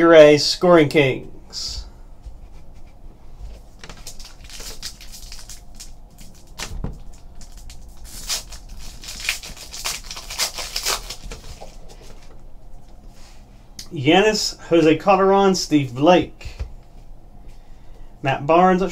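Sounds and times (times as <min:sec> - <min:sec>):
foil wrapper tearing and crinkling: 0:03.8 - 0:11.8.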